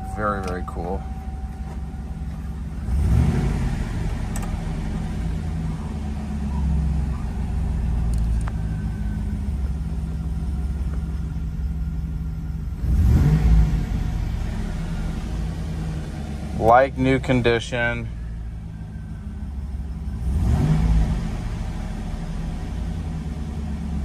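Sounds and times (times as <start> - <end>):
car engine starting and idling: 0.0 - 24.0.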